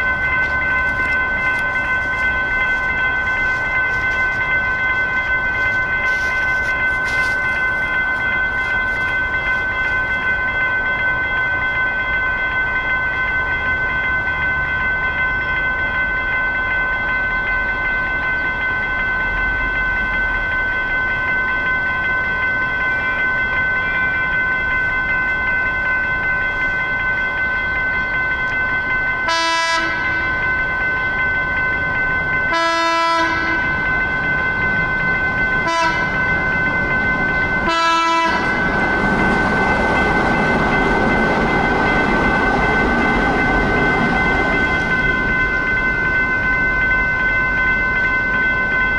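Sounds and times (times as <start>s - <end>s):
crossing warning bell ringing: 0.0s - 48.9s
train horn blasts: 29.3s - 30.0s, 32.5s - 33.6s, 35.6s - 36.1s, 37.6s - 38.4s.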